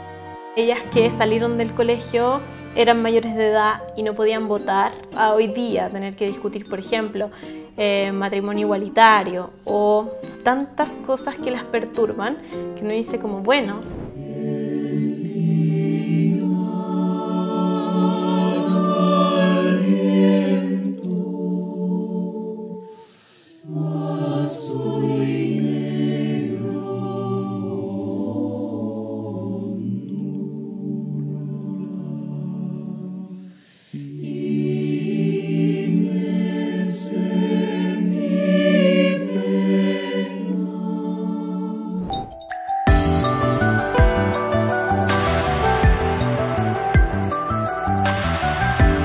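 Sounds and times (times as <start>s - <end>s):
mixed choir singing: 13.7s - 42.3s, 42.9s - 49.0s.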